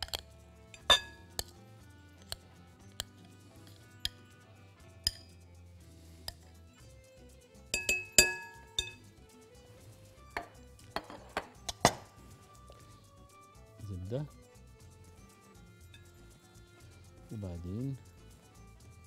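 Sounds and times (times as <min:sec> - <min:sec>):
spoon and jar clinking on glass bowl: 0:00.0 - 0:01.6, 0:05.0 - 0:05.4, 0:07.7 - 0:09.0, 0:10.4 - 0:12.2.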